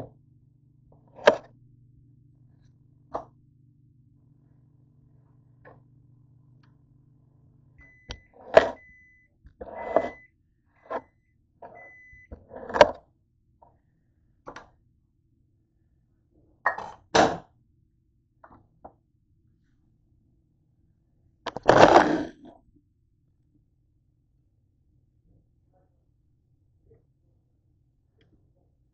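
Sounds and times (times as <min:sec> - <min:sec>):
microwave oven humming: 0:00.0 - 0:21.9
microwave beeping: 0:07.7 - 0:12.9.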